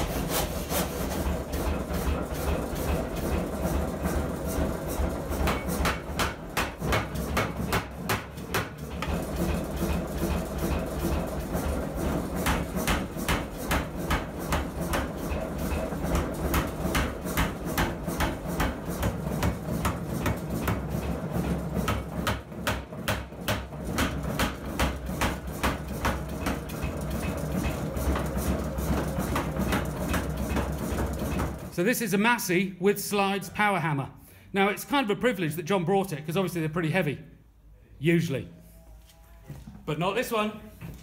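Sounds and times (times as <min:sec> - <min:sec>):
low machine hum: 0:00.0 - 0:32.2.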